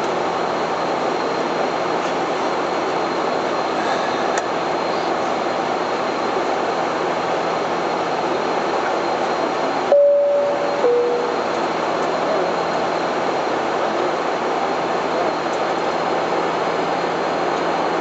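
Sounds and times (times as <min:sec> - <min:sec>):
aircraft cockpit engine rush: 0:00.0 - 0:18.0
two-note falling electronic tone: 0:09.9 - 0:11.5.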